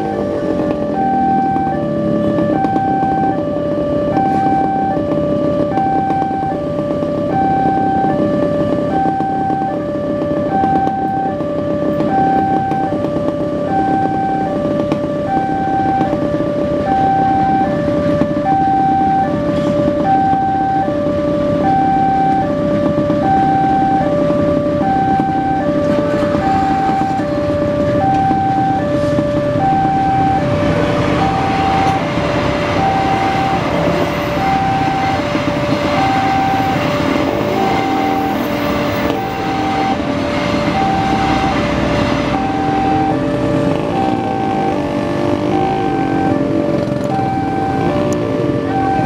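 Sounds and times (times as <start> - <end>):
passing diesel train: 0.0 - 49.0
two-tone crossing alarm: 0.0 - 49.0.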